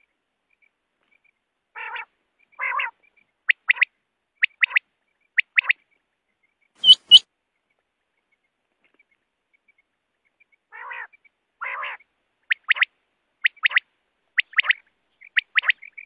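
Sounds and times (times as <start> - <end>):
raspy nasal quail calls: 1.8 - 4.8, 5.4 - 5.8, 6.8 - 7.2, 10.7 - 16.0
quail sharp notes: 6.8 - 7.2
quail three-note song: 6.8 - 7.2.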